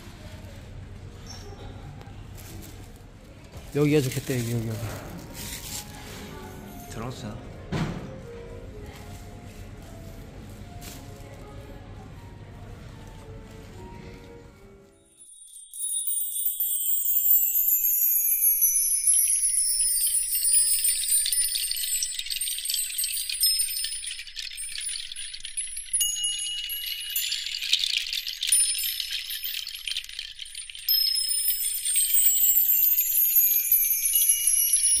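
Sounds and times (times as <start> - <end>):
chime-like tinkling music: 14.8 - 35.0.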